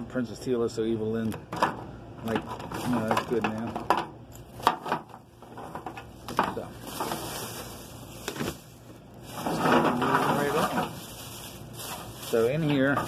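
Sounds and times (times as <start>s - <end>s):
soft rustling: 6.6s - 13.0s.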